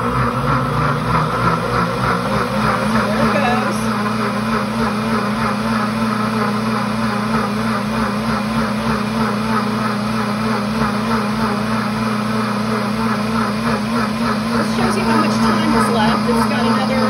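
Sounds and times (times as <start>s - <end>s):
blender motor running: 0.0s - 17.0s
water churning in blender: 0.0s - 17.0s.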